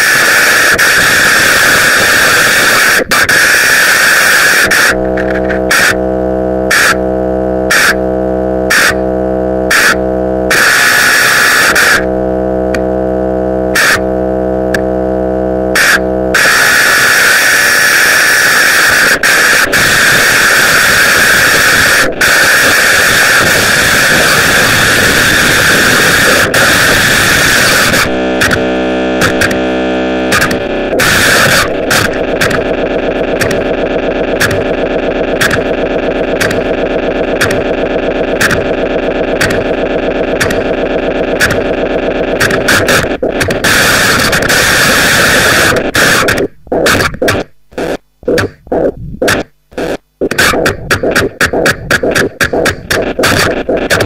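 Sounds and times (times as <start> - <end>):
harsh electronic noise music: 0.0 - 54.0.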